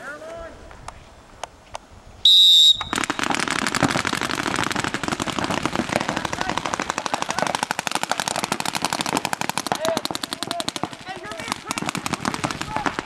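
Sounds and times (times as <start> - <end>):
paintball markers firing: 2.6 - 13.0.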